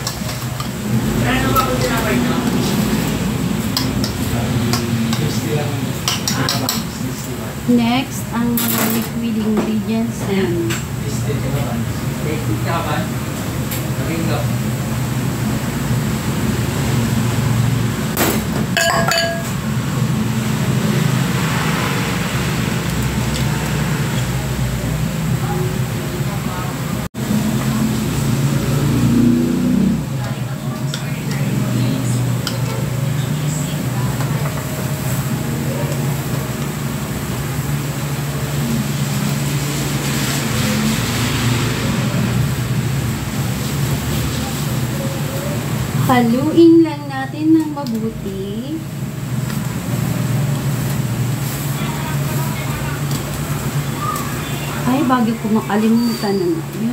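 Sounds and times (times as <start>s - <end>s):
glass bowl clinking on steel bowl: 18.8s - 19.6s
steady background hum: 30.0s - 56.9s.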